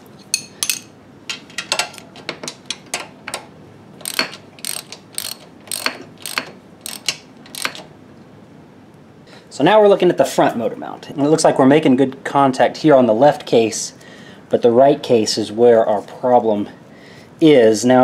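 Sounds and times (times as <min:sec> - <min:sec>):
socket ratchet clicking: 0:04.0 - 0:07.9.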